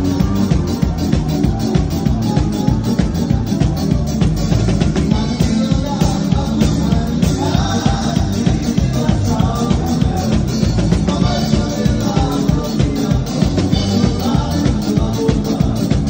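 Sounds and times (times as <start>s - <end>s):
drum kit beat: 0.0s - 16.0s
electric guitars: 0.0s - 16.0s
men singing into microphones: 4.9s - 16.0s.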